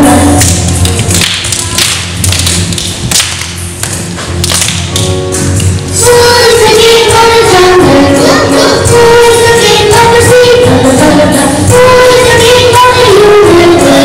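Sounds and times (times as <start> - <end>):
sharp claps and thuds: 0.4 - 5.8
children singing: 6.0 - 14.0.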